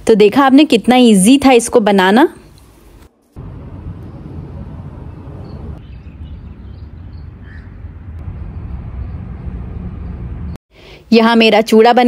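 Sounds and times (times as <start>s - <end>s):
steady low rumble: 3.4s - 5.8s, 6.4s - 10.6s.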